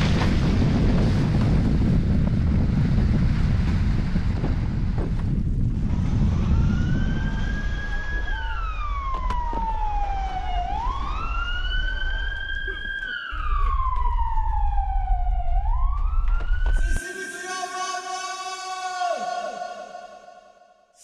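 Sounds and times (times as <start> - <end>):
steady low rumble: 0.0 - 9.1, 13.4 - 17.0
siren wailing: 6.0 - 20.3.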